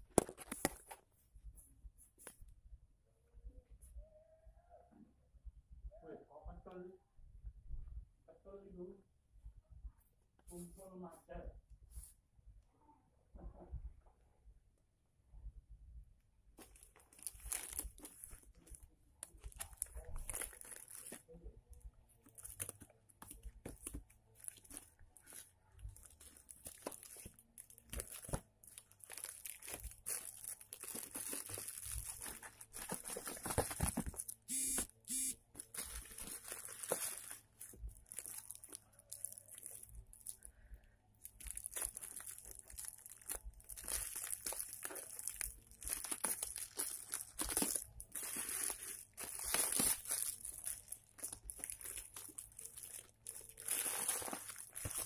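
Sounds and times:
plastic wrapping crinkling and tearing: 0:16.6 - 0:21.4, 0:22.2 - 0:34.5, 0:35.5 - 0:40.6, 0:41.2 - 0:55.0.

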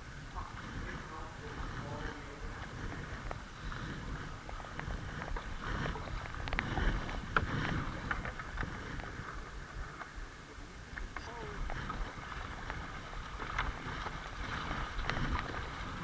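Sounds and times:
paddle strokes splashing: 0:00.0 - 0:16.0
river rippling over shallows: 0:00.0 - 0:16.0.

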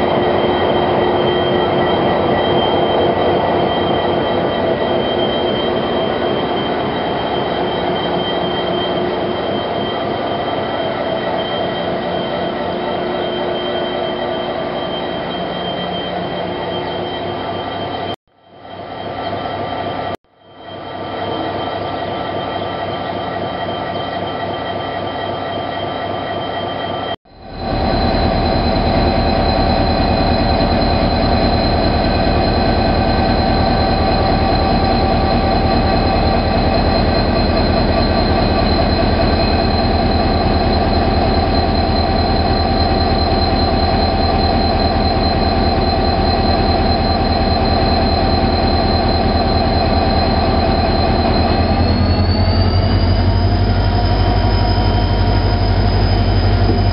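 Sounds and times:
diesel locomotive engine running: 0:00.0 - 0:18.2, 0:27.3 - 0:56.9
steady high whine: 0:27.3 - 0:56.9.

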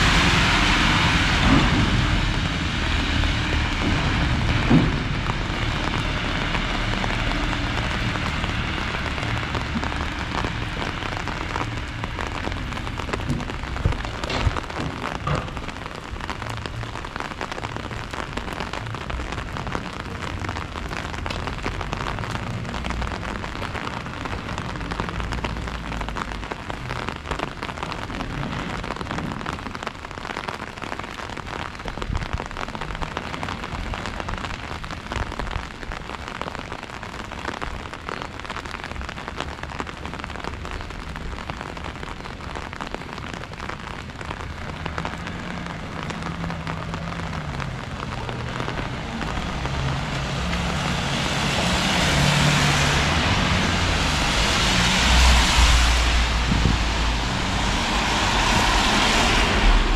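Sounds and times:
low rumble: 0:00.0 - 0:25.9, 0:45.8 - 0:59.9
steady rain falling: 0:00.0 - 0:59.9.

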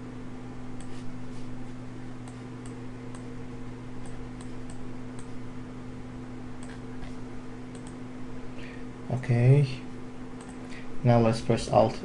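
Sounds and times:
steady electrical hum: 0:00.0 - 0:12.0
computer mouse clicking: 0:02.2 - 0:03.3, 0:04.0 - 0:05.4, 0:06.6 - 0:07.1, 0:07.7 - 0:08.0, 0:10.4 - 0:10.6.

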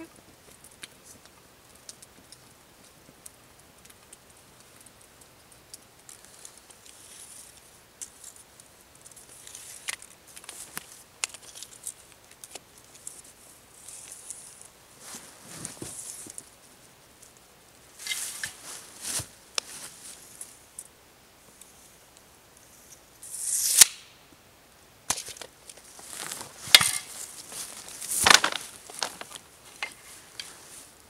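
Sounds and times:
rustling in dry leaf litter: 0:17.9 - 0:20.6, 0:25.7 - 0:31.0.

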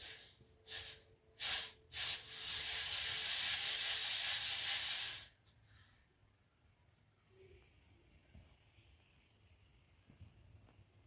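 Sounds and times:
hiss of pouring grain: 0:00.0 - 0:05.4.

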